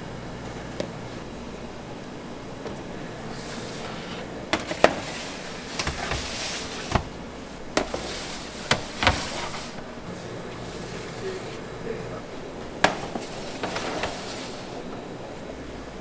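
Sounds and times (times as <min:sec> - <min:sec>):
metal trays scraping: 0:03.3 - 0:09.9, 0:10.6 - 0:11.7, 0:12.8 - 0:14.8.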